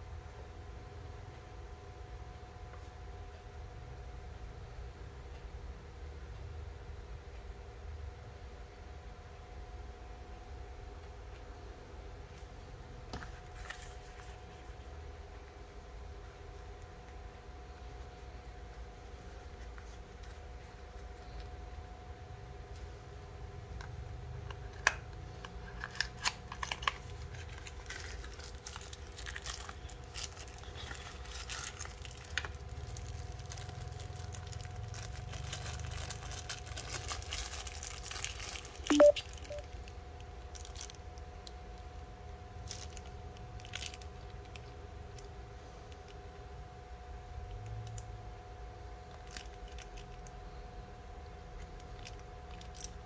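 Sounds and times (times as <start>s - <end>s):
hands rustling and crinkling: 25.9s - 39.6s.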